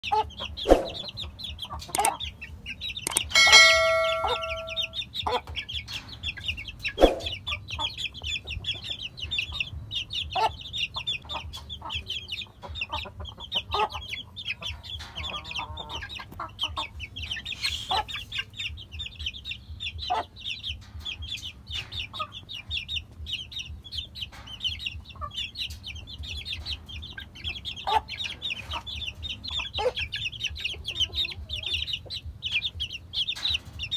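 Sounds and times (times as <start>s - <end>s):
chickens clucking: 0.0s - 33.9s
chicks cheeping: 0.0s - 33.9s
loud held chicken call: 3.1s - 5.4s.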